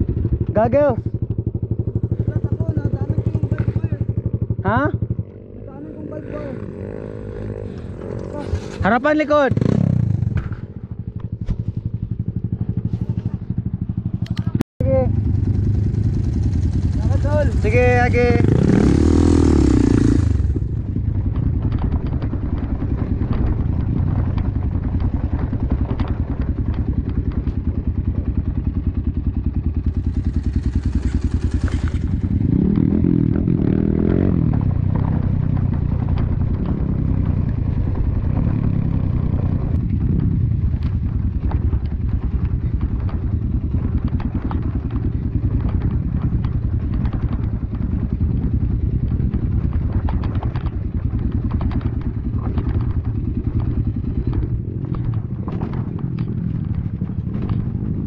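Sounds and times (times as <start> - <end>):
dirt bike engine revving: 0.0 - 28.7, 29.3 - 58.0
bike rattling and knocking: 0.0 - 58.0.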